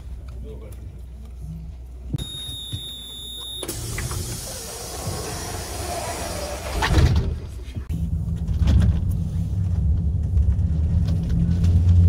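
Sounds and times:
door mechanism whirring: 0:02.2 - 0:07.4.

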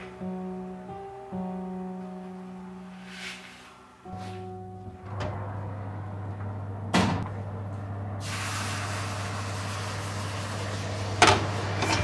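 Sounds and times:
water hissing into steam: 0:08.2 - 0:11.3.

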